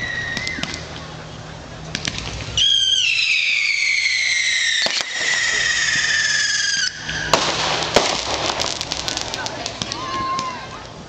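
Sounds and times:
firework whistling: 0:00.0 - 0:01.2, 0:02.0 - 0:10.9
firework crackling: 0:01.8 - 0:11.0
firework bang: 0:02.0 - 0:10.6.

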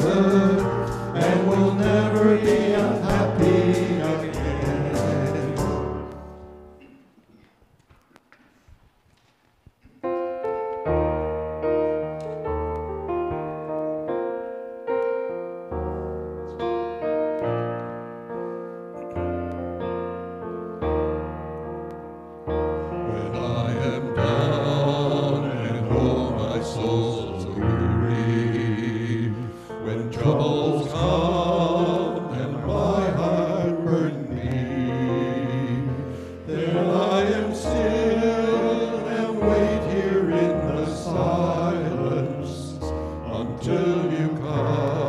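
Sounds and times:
men singing together: 0:00.0 - 0:06.1, 0:23.1 - 0:45.0.

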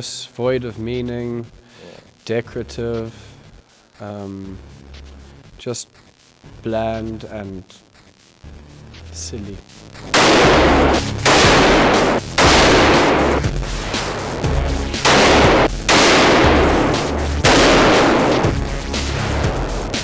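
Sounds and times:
rifle shots echoing indoors: 0:10.1 - 0:13.5, 0:15.0 - 0:18.6.

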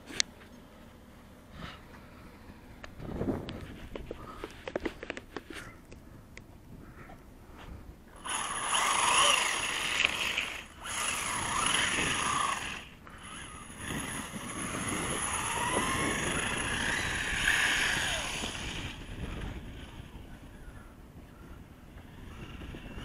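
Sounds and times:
tyre and road noise: 0:00.0 - 0:06.8, 0:07.6 - 0:23.0
electric motor whine: 0:08.1 - 0:23.0.

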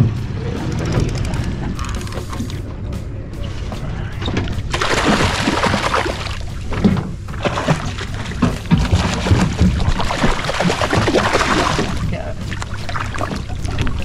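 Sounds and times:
fish splashing water: 0:04.7 - 0:14.0.

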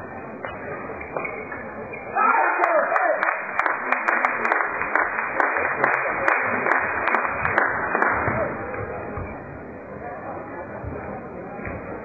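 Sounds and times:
spectators applauding: 0:02.6 - 0:08.4.

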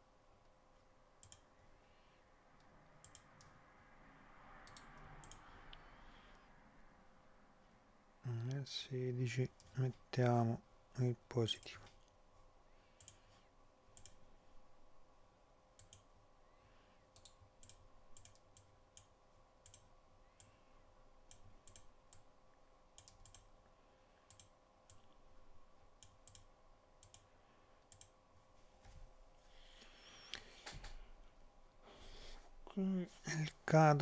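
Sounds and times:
low electrical hum: 0:00.0 - 0:34.0
computer mouse clicks: 0:01.2 - 0:01.5, 0:02.6 - 0:03.6, 0:04.6 - 0:05.8, 0:13.0 - 0:13.3, 0:13.9 - 0:14.3, 0:15.8 - 0:16.1, 0:17.1 - 0:20.6, 0:21.3 - 0:22.3, 0:23.0 - 0:23.6, 0:24.3 - 0:25.2, 0:26.0 - 0:28.2.

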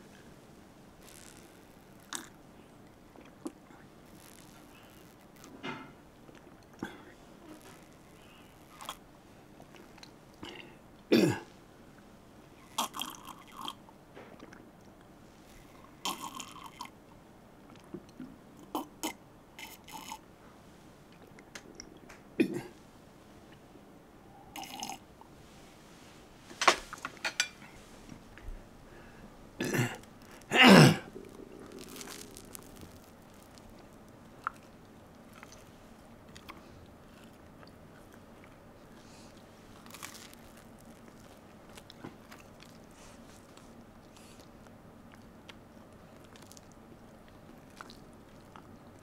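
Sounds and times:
person sipping and slurping: 0:01.0 - 0:02.4, 0:15.5 - 0:16.9, 0:18.8 - 0:20.2, 0:24.6 - 0:25.0, 0:29.6 - 0:33.8
throaty burp-like sounds: 0:02.1 - 0:02.4, 0:10.4 - 0:11.5, 0:12.7 - 0:13.8, 0:16.0 - 0:16.9, 0:22.4 - 0:22.7, 0:29.6 - 0:32.7.

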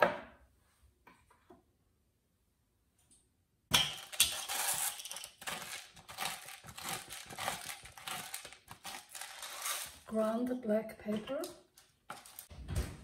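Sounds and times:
pepper grinder grinding: 0:04.0 - 0:10.0.

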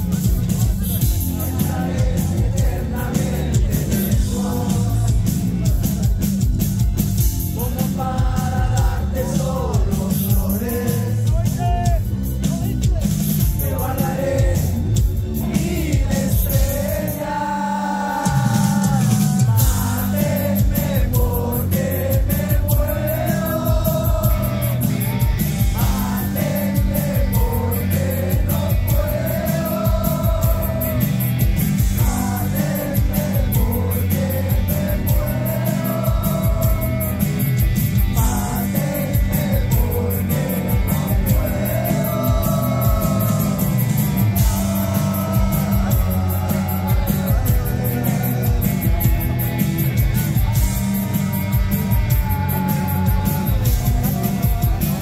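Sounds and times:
man singing: 0:00.0 - 0:06.6, 0:07.4 - 0:55.0
bass: 0:00.0 - 0:55.0
drums: 0:00.0 - 0:55.0
electric guitars: 0:13.4 - 0:55.0.

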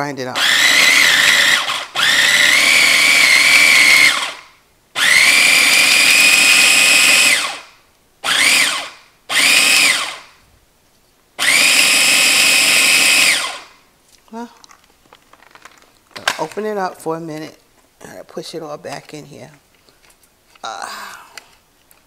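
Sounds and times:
food processor motor whine: 0:00.4 - 0:04.4, 0:05.0 - 0:10.3, 0:11.4 - 0:13.8.

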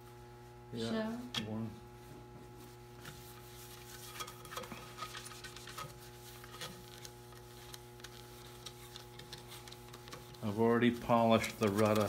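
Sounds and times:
electrical hum: 0:00.0 - 0:12.0
paper towel rubbing on wood: 0:02.5 - 0:12.0.

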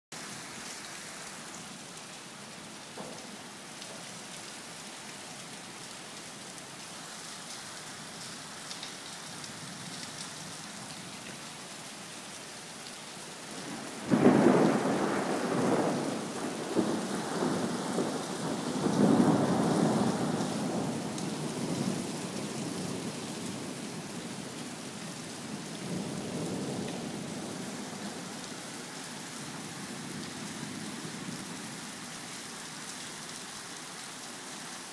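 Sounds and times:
steady rain falling: 0:00.2 - 0:34.9
thunderclap rumbling: 0:13.6 - 0:22.0.

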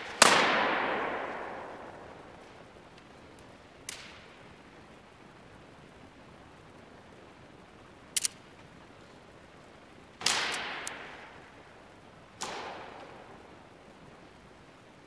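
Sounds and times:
rope whip cracking: 0:03.8 - 0:04.3, 0:10.2 - 0:11.0, 0:12.4 - 0:13.2.

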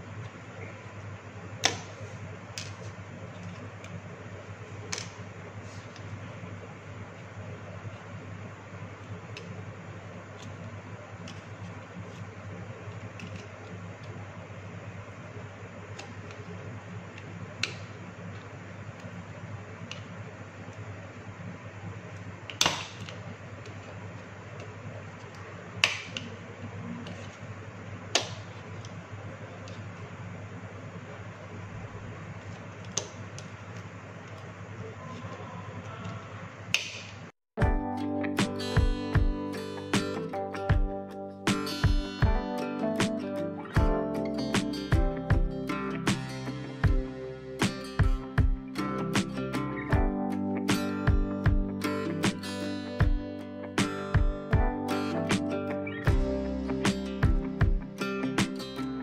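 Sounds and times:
low background hum: 0:00.0 - 0:59.0
steady low hum: 0:37.6 - 0:59.0.

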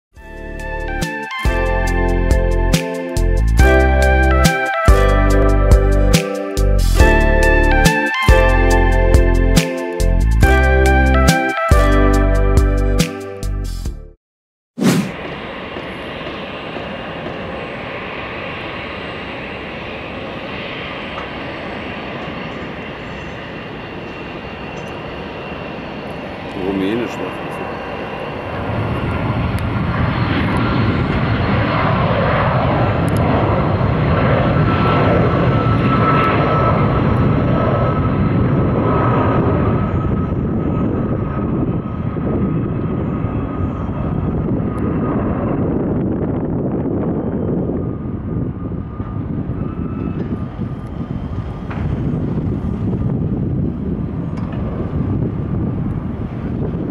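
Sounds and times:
jet engines taxiing: 0:15.0 - 0:56.9.

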